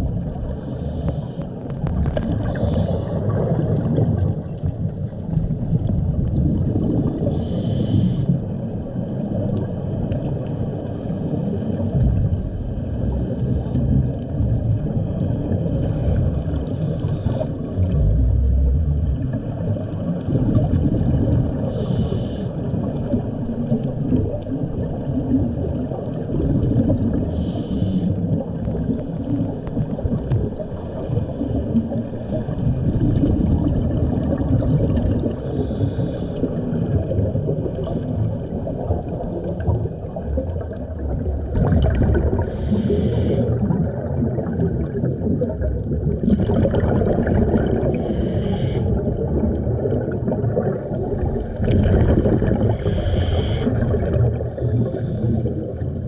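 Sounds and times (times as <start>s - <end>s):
underwater rumble and bubbles: 0.0s - 56.0s
scuba regulator hiss: 0.6s - 1.4s, 2.5s - 3.2s, 7.3s - 8.3s, 21.7s - 22.5s, 27.3s - 28.1s, 35.4s - 36.4s, 42.5s - 43.5s, 48.0s - 48.9s, 52.7s - 53.7s, 54.6s - 55.4s.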